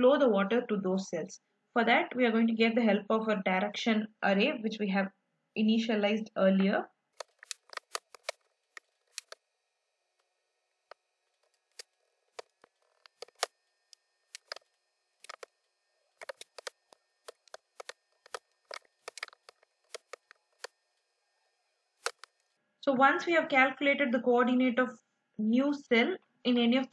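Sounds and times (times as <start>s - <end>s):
keyboard keystroke clicks: 9.1s - 9.4s, 16.2s - 20.7s, 22.0s - 22.3s.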